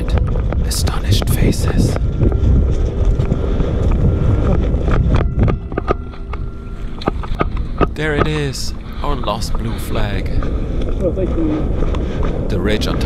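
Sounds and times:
footsteps in dry grass: 0.0s - 8.0s
wind buffeting microphone: 0.0s - 13.0s.

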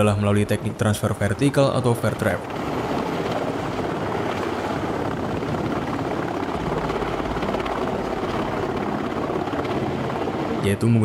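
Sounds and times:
helicopter hovering: 0.0s - 11.0s.

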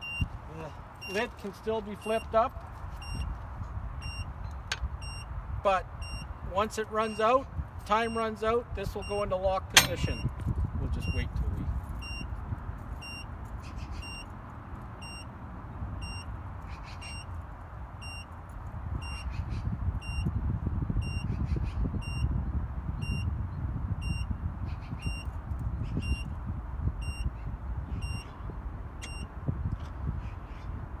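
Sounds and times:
short high beeps: 5.0s - 5.3s, 9.8s - 10.3s.

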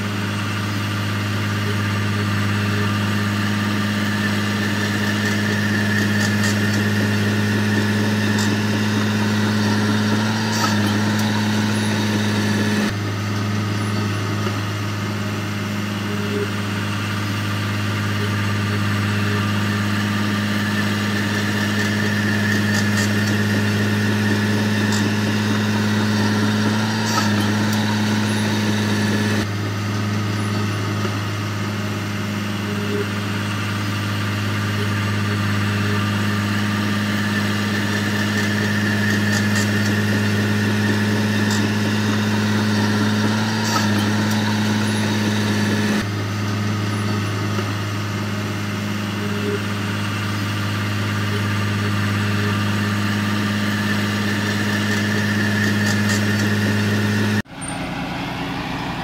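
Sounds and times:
diesel engine running: 0.0s - 59.0s
quieter engine sound: 0.0s - 59.0s
mechanical clatter: 2.6s - 15.0s, 19.4s - 31.9s, 36.0s - 47.8s, 53.6s - 57.8s.

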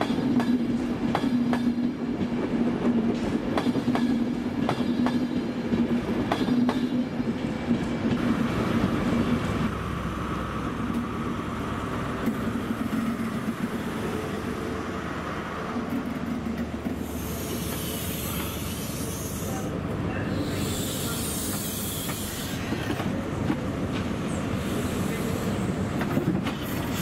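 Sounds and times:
diesel train engine rumble: 7.8s - 27.0s
loud hiss of air: 17.0s - 19.7s, 20.3s - 22.9s, 24.3s - 25.8s
train wheel squeal: 17.0s - 19.7s, 20.3s - 23.0s.

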